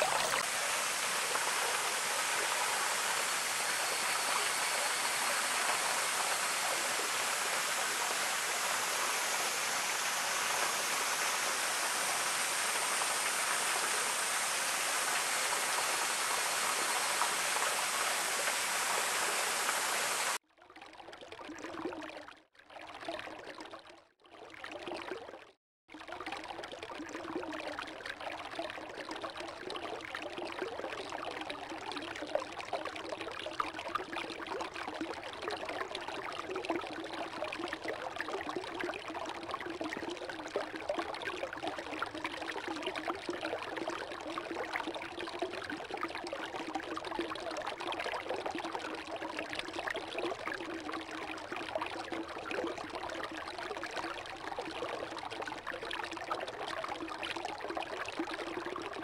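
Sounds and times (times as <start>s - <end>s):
underwater stream gurgle: 0.0s - 59.0s
waterfall splashing onto rocks: 5.4s - 20.4s.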